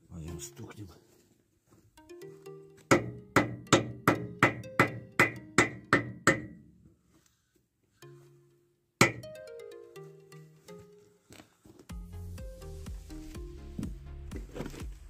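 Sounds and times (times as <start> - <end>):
percussive hits: 2.9 - 6.6, 9.0 - 9.3
falling run of notes: 9.2 - 11.0.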